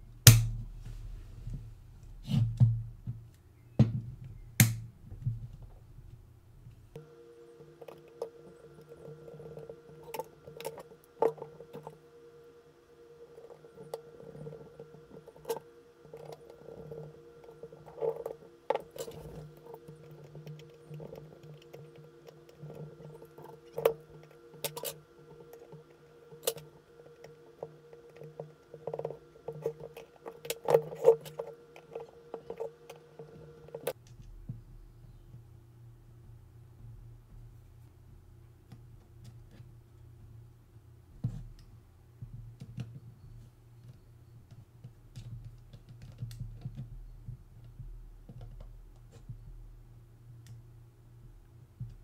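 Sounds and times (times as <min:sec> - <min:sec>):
low hum: 0:00.0 - 0:44.5
light clicks and taps of metal parts: 0:41.2 - 0:49.7.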